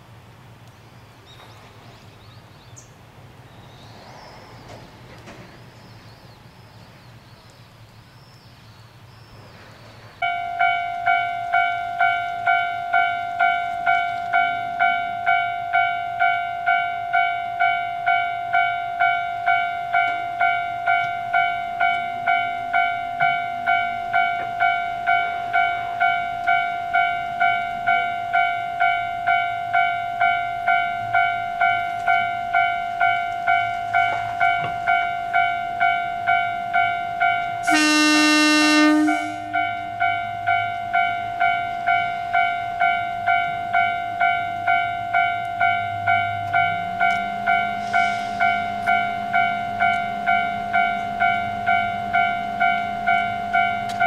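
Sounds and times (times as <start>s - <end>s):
diesel railcar engine: 0.0s - 54.0s
level crossing alarm ringing: 10.2s - 54.0s
train horn: 37.6s - 40.0s.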